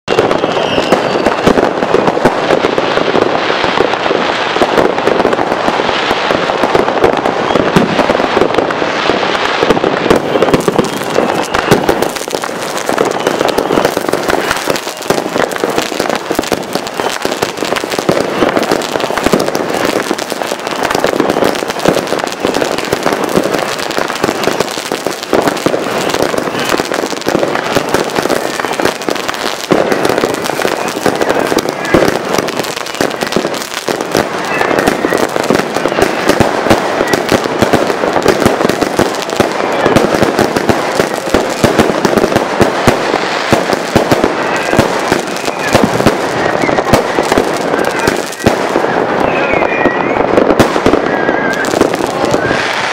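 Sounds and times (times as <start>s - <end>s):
fireworks crackling and banging: 0.0s - 52.9s
fountain firework hissing: 0.2s - 49.2s, 50.2s - 52.9s.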